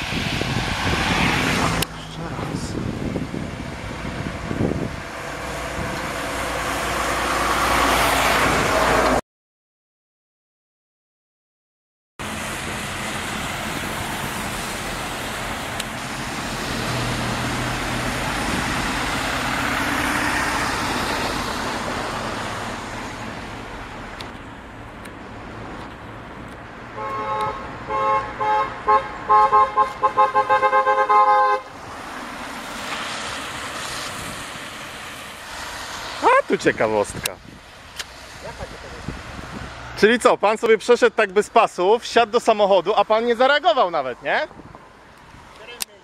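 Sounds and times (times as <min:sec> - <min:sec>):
car tyres hissing on wet road: 0:00.0 - 0:01.8, 0:12.2 - 0:23.9, 0:31.6 - 0:37.0
two-tone car horn toots: 0:27.0 - 0:31.7.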